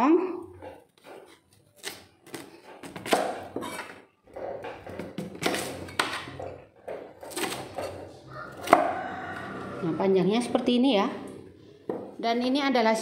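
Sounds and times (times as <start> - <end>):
scraping and handling: 0.9 - 8.1.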